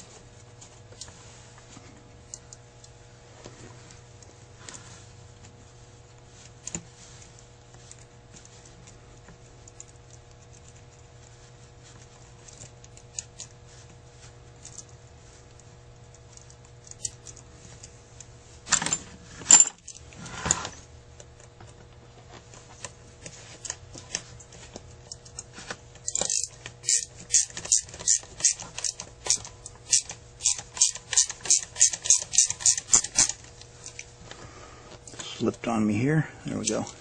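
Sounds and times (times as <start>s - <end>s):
handling scrapes: 3.2s - 8.7s, 19.0s - 20.9s
screwdriver metal clicks and rattles: 25.0s - 34.0s.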